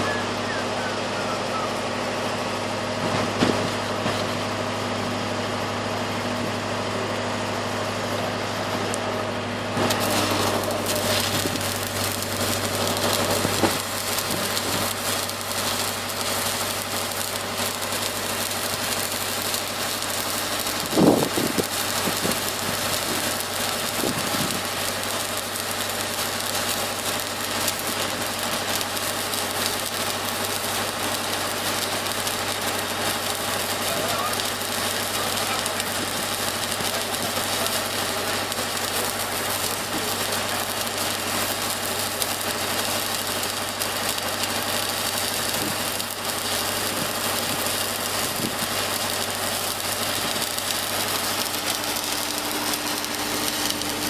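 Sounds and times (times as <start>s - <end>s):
engine humming: 0.0s - 28.3s
arc welding crackling hiss: 0.0s - 54.0s.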